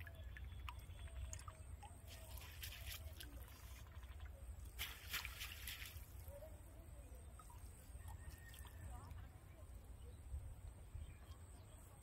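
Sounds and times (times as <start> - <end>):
water dripping off a net: 0.0 - 3.8, 4.6 - 6.4.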